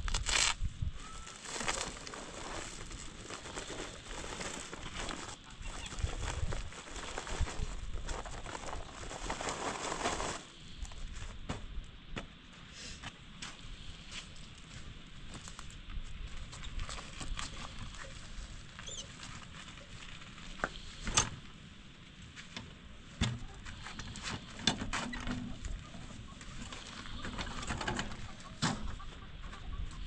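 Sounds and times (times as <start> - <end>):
faint chirp: 1.0 - 1.5, 18.8 - 19.1.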